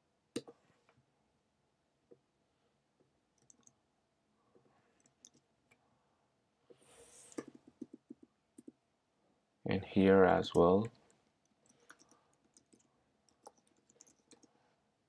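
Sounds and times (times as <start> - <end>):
keyboard and mouse clicks: 0.4 - 0.6, 3.4 - 3.8, 5.0 - 5.8, 7.3 - 8.8, 11.6 - 14.6.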